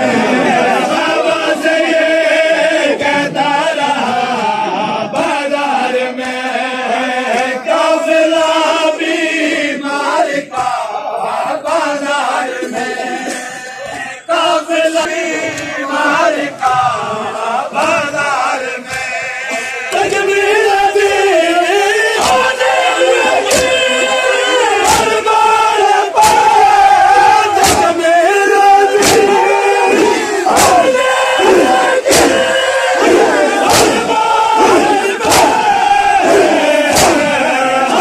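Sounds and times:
men chanting in unison: 0.0s - 38.0s
hands slapping bare chests: 22.2s - 22.5s, 23.5s - 23.8s, 26.2s - 26.5s, 27.6s - 28.0s, 29.0s - 29.4s, 30.5s - 32.4s, 33.0s - 35.7s, 36.3s - 38.0s.

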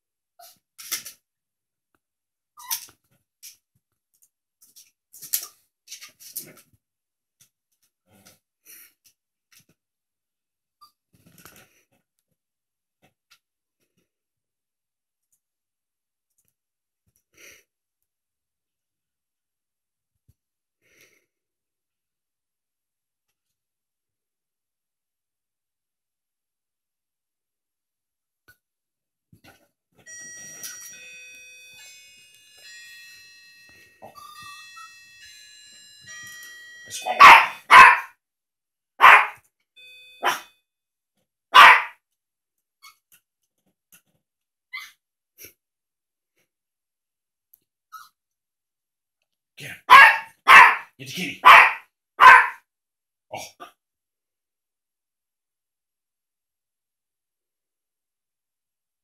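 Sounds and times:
small dog barking: 37.0s - 38.1s, 39.0s - 39.4s, 40.2s - 40.5s, 41.5s - 42.0s, 49.9s - 52.6s.

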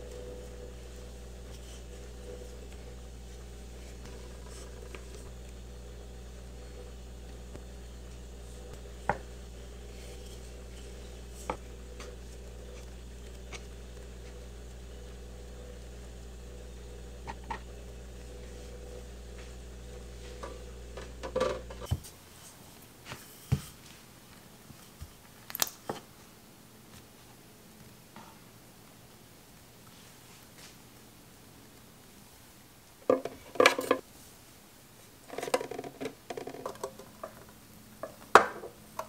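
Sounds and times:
steady low hum: 0.0s - 25.2s.

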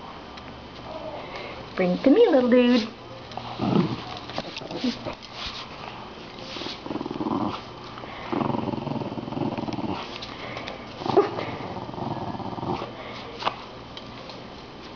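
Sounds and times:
small dog growling playfully: 3.4s - 5.2s, 6.8s - 10.2s, 11.0s - 13.0s.

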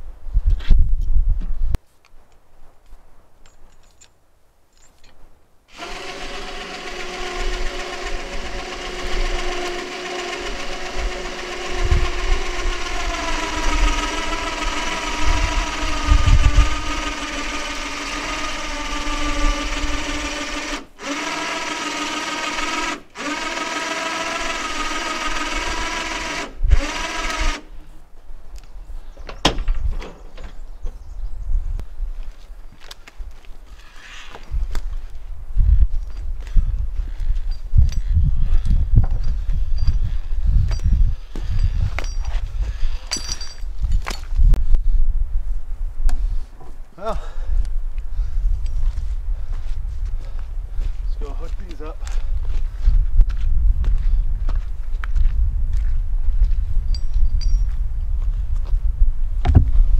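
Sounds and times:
electric hoist motor whine: 5.7s - 27.7s.

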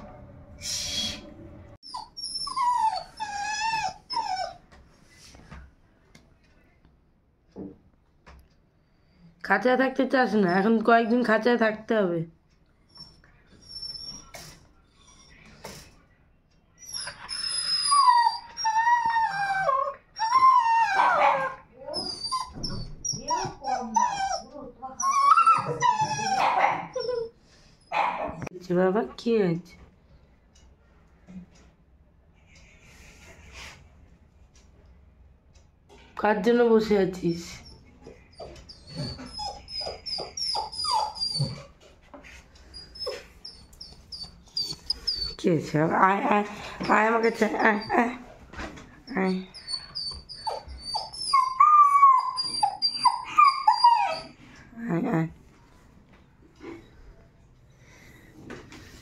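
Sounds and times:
dog whining: 1.8s - 4.6s, 16.8s - 28.4s, 37.6s - 41.8s, 42.7s - 45.4s, 49.1s - 54.4s.

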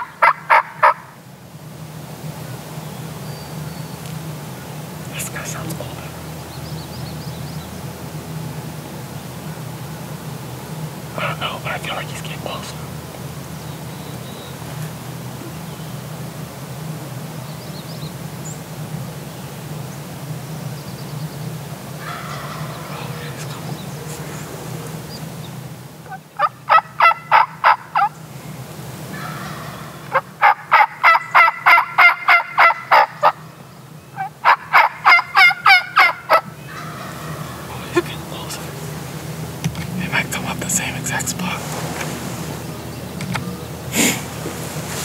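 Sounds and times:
turkey gobbling: 0.0s - 1.2s, 22.0s - 25.1s, 26.0s - 28.2s, 29.1s - 33.5s, 34.2s - 39.2s.

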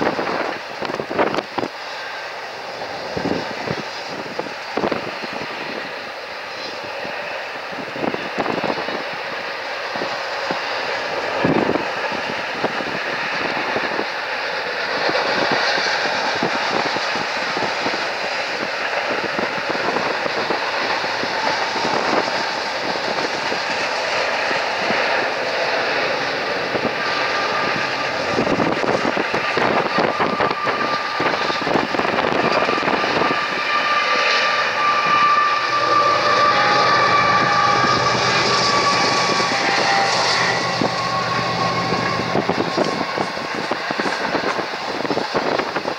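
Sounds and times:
freight train rumble and rattle: 0.0s - 45.9s
high squealing tones: 19.8s - 44.5s.

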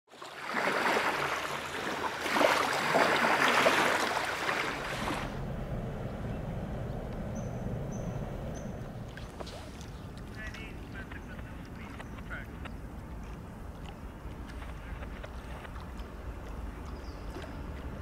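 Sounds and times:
small waves washing on shore: 0.1s - 5.9s, 8.6s - 18.0s
steady low rumble: 4.4s - 18.0s.

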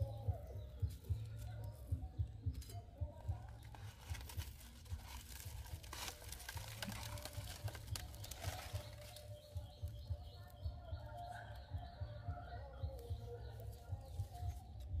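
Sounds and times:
foil scraping and crinkling: 3.4s - 9.4s.

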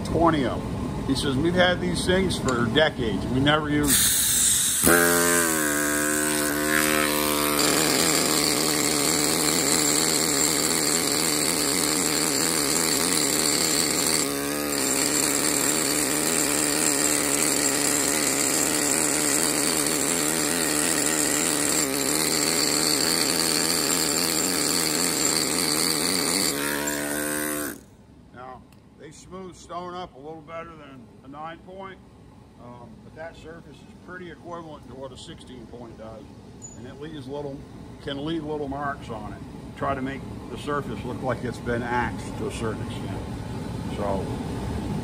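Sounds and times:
pneumatic hammer buzzing on stone: 3.8s - 27.9s.

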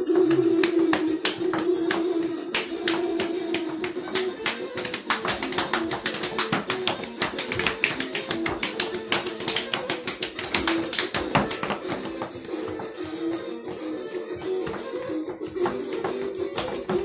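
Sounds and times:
dance music: 0.0s - 17.0s
fast claps or taps: 0.2s - 13.8s, 14.4s - 17.0s.

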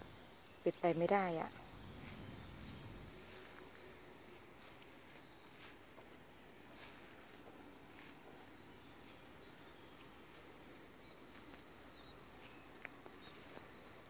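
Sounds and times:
high insect hum: 0.0s - 14.0s
footfalls on grass: 1.9s - 10.6s.

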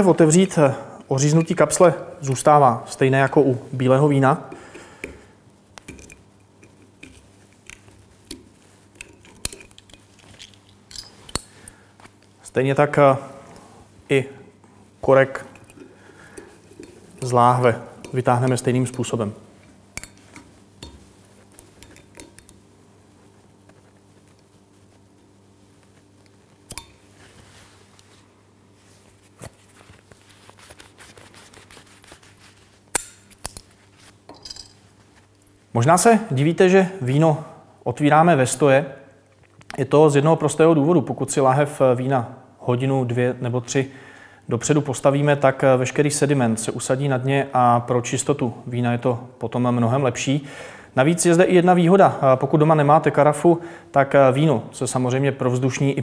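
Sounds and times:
cloth rustling on a bottle: 23.0s - 32.9s.

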